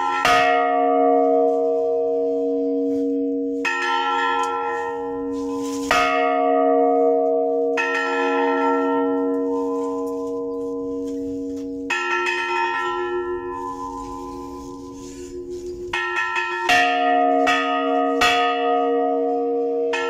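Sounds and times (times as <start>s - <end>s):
large church bell ringing: 0.0s - 20.0s.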